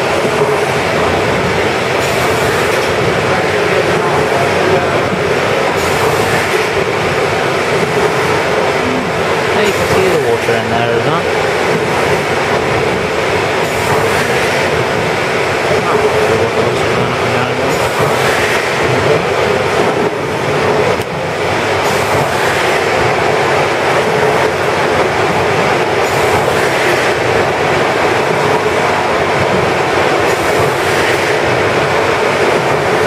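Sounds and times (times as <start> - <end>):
steam engine clatter and hiss: 0.0 - 33.0.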